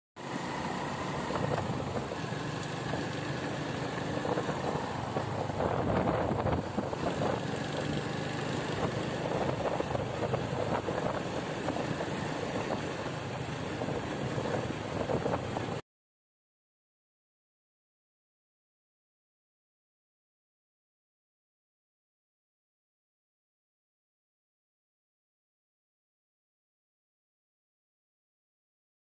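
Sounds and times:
motorcycle engine running: 0.2 - 15.8
road noise: 0.2 - 15.8
wind: 0.2 - 15.8.

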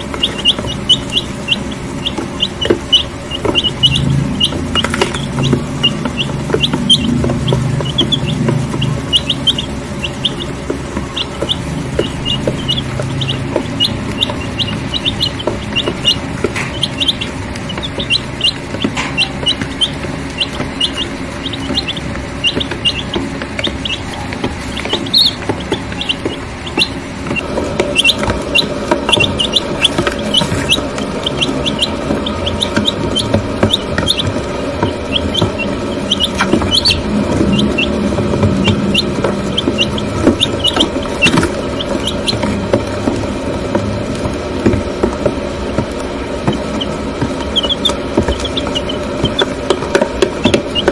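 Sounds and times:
chicks peeping: 0.0 - 50.9.

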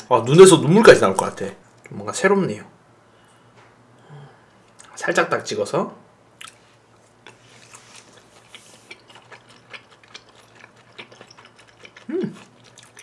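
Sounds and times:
wet chewing mouth clicks: 7.2 - 13.0
person humming: 12.1 - 12.4.

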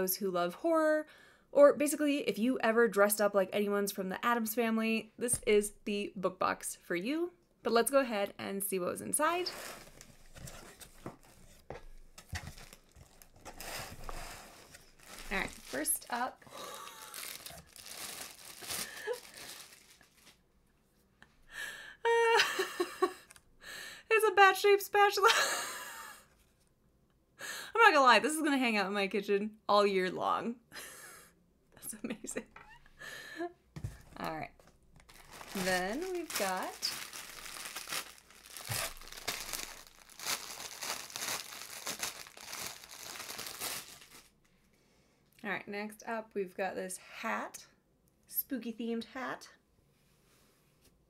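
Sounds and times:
plastic wrapping crinkling and tearing: 9.2 - 20.4, 34.2 - 44.4.

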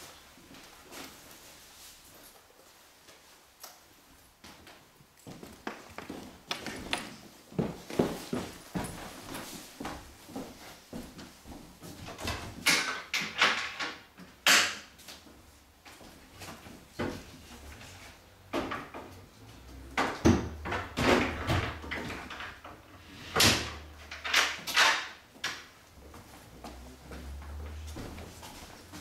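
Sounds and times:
door knocking and clattering: 20.0 - 22.6.

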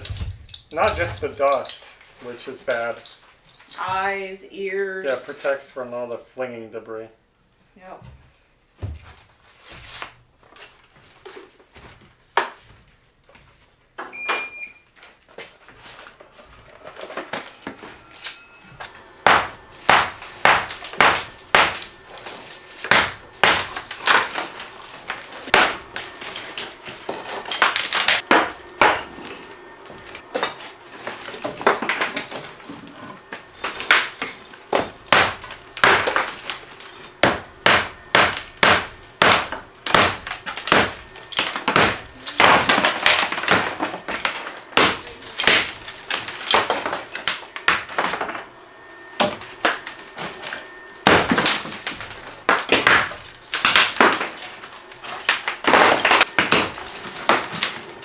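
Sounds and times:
hammer striking bricks: 19.2 - 29.2, 33.6 - 36.6, 37.2 - 48.4, 51.0 - 54.4, 55.3 - 57.8.

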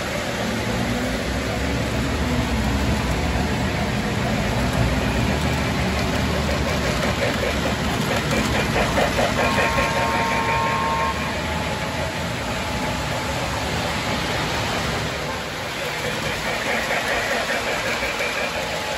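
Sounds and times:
model train rumble: 0.0 - 18.9
rapid clicking of wheels: 2.0 - 10.8, 15.7 - 18.9.

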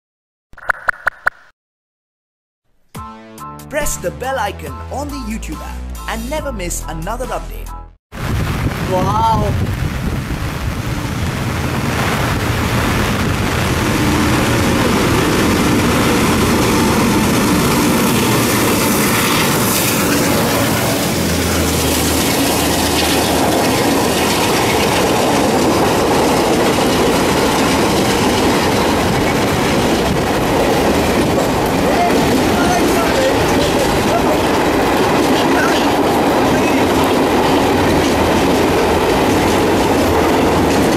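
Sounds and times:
train wheels running over rails: 13.7 - 40.9.

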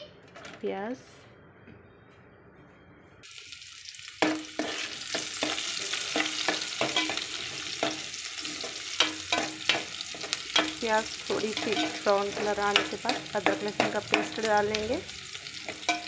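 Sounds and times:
onions sizzling in oil: 3.2 - 16.0
utensil scraping a pan: 4.5 - 14.4.

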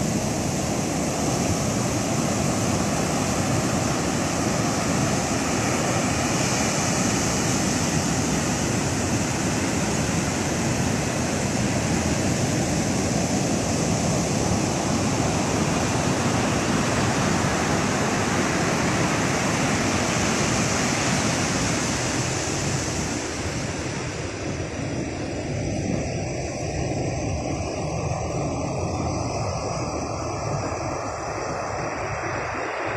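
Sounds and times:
heavy surf crashing waves: 0.0 - 25.2.

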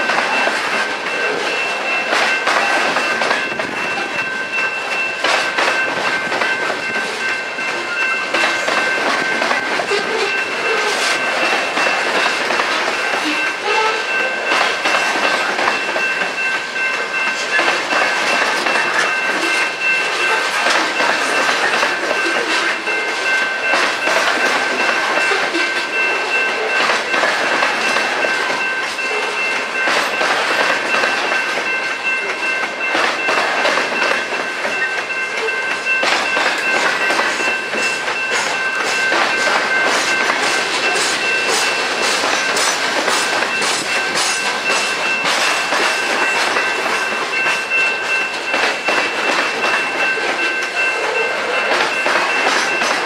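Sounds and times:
train wheels clattering over rail joints: 0.0 - 53.0
wheels squealing against rail: 6.9 - 12.0, 13.0 - 16.2.

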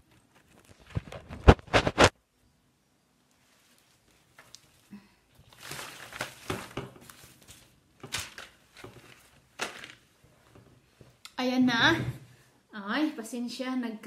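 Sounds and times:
paper rustling: 0.0 - 2.1, 3.4 - 10.2.

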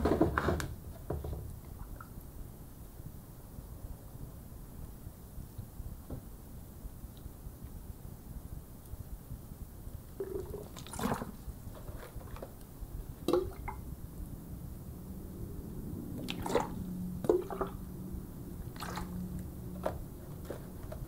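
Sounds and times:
water pouring from bottle: 10.2 - 12.5, 16.2 - 17.9, 18.6 - 20.7.

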